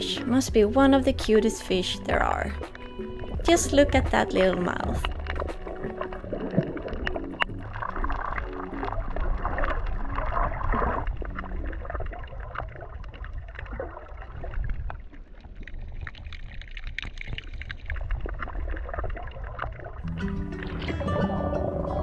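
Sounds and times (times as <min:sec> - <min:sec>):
soft background music: 0:00.0 - 0:12.8, 0:20.0 - 0:22.0
water gurgling and sloshing: 0:00.0 - 0:22.0.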